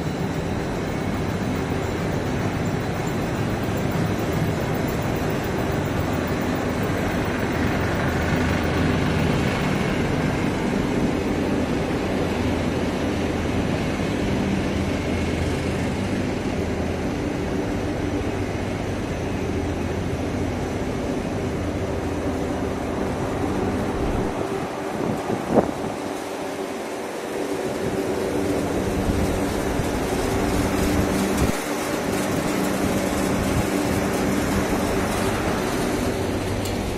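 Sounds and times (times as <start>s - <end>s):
production line machinery din: 21.7s - 36.9s.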